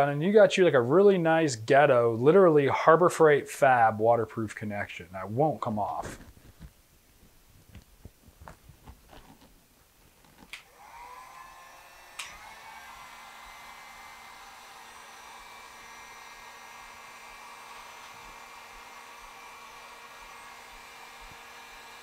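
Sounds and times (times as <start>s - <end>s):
heat gun blowing: 10.5s - 22.0s
heat gun switch click: 12.2s - 12.4s.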